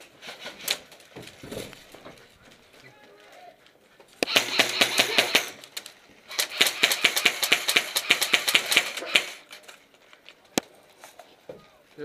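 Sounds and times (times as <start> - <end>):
airsoft rifle firing bursts: 4.2 - 5.6, 6.3 - 9.5.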